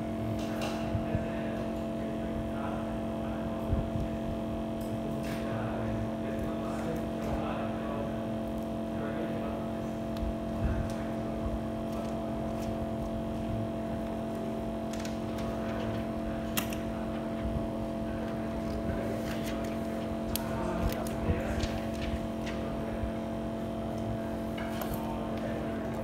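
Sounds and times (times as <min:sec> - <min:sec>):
steady machine hum: 0:00.0 - 0:26.0.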